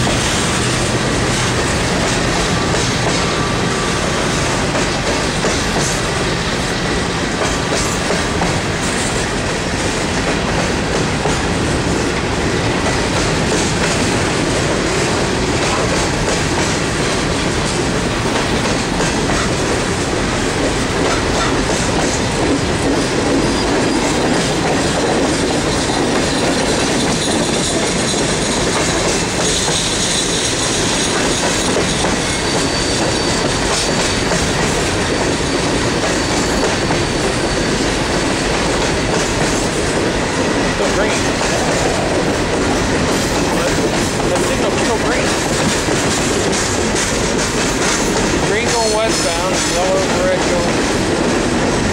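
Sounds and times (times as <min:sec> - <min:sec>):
train wheels clattering over rail joints: 0:00.0 - 0:51.9
high wheel squeal: 0:02.4 - 0:04.6, 0:23.3 - 0:38.3.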